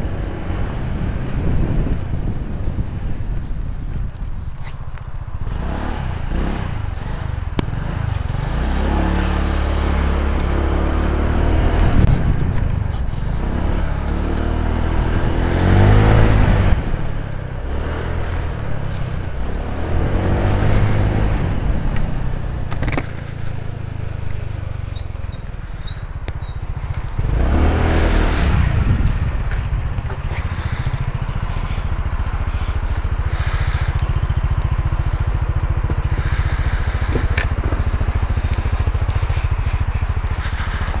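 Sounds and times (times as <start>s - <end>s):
scooter engine revving: 5.2s - 41.0s
wind rushing: 27.2s - 41.0s.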